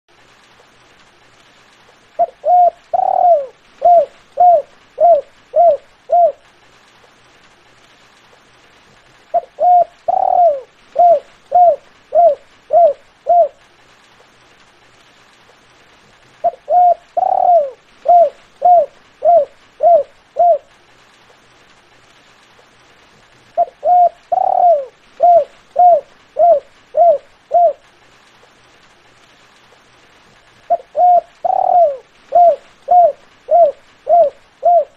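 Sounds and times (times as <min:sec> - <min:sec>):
dove cooing: 0:02.2 - 0:06.5, 0:09.3 - 0:13.6, 0:16.4 - 0:20.7, 0:23.6 - 0:27.8, 0:30.7 - 0:34.9.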